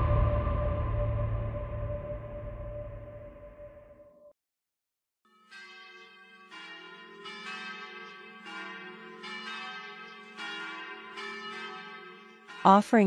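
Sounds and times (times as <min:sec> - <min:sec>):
church bells ringing: 0:00.0 - 0:01.8, 0:05.3 - 0:13.0.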